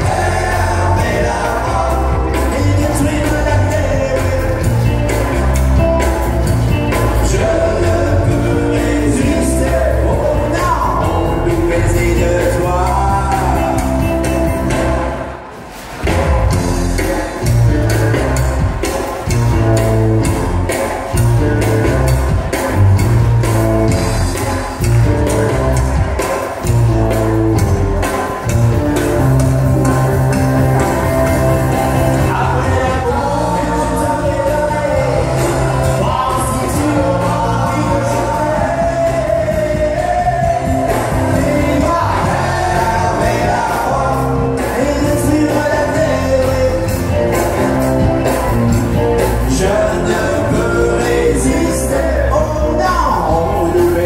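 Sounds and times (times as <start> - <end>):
country song over pa system: 0.0 - 54.0.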